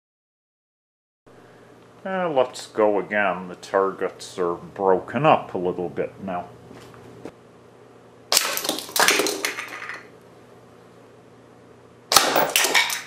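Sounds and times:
plastic toy pieces clattering: 8.5 - 10.1, 12.3 - 13.0.

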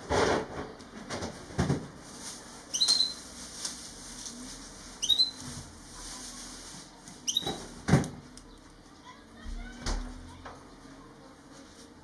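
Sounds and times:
finch chirping: 2.7 - 3.2, 5.0 - 5.4, 7.2 - 7.7.

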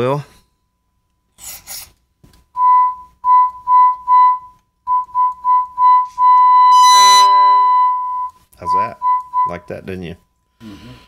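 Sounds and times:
whistle-like test tone: 2.6 - 9.7.

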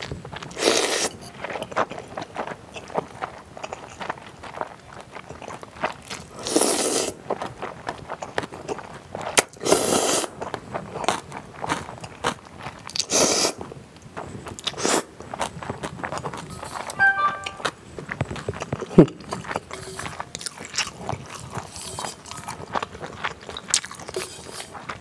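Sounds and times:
wet chewing clicks: 0.3 - 16.5
noodles slurping: 0.5 - 1.2, 6.1 - 7.3, 18.6 - 25.0.

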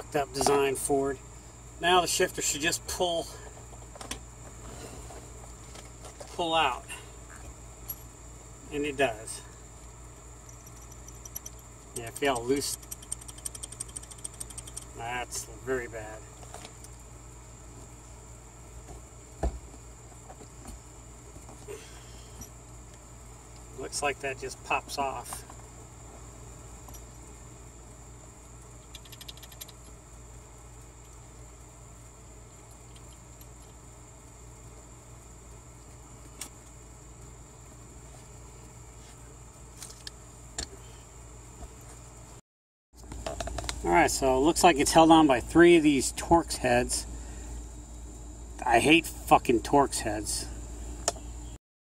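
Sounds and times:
high insect drone: 0.0 - 42.4, 43.0 - 51.6
steady low hum: 0.0 - 42.4, 43.0 - 51.6
parts clicking in hands: 10.5 - 15.0.

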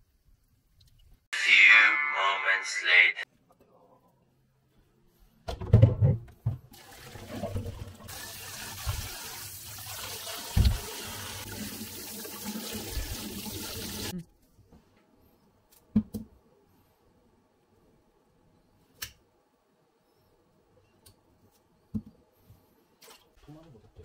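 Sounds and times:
tap water running into a steel sink: 6.8 - 14.1.

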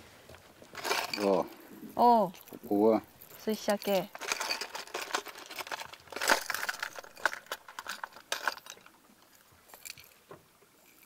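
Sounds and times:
hand rustling in tackle box: 0.0 - 11.0
plastic lures clicking and rattling: 0.6 - 1.6, 2.3 - 11.0.

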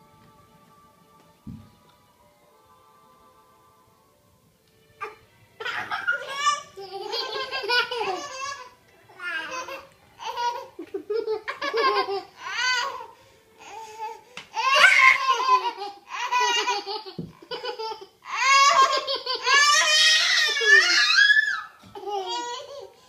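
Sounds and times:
toddlers laughing and squealing: 5.0 - 23.0.

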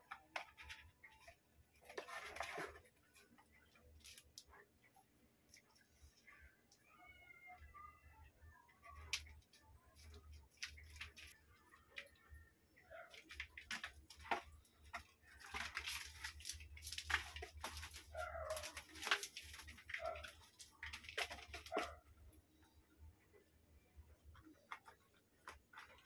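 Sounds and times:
kittens scratching and rustling: 0.0 - 6.8, 8.7 - 23.4, 24.0 - 26.0.

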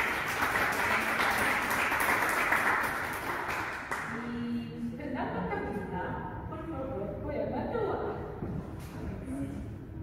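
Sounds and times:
audience applauding: 0.0 - 4.2.

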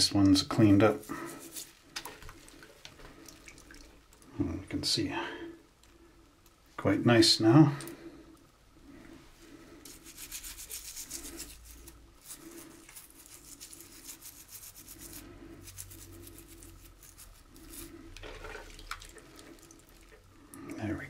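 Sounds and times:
toothbrush scrubbing: 0.5 - 1.8, 9.8 - 20.2.

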